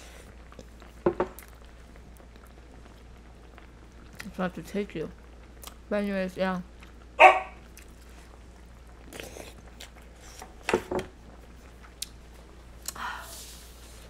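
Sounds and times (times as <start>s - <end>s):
person chewing: 7.7s - 8.0s, 9.0s - 10.4s.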